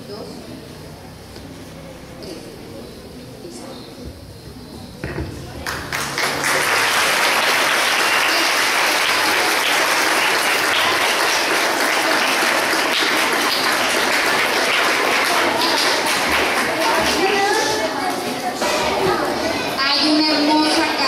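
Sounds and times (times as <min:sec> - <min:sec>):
audience applauding: 0:05.6 - 0:18.2.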